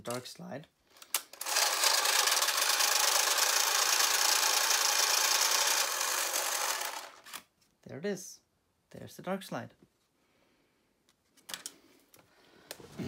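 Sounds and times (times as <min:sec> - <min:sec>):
camera motor whirring: 0:01.3 - 0:07.4.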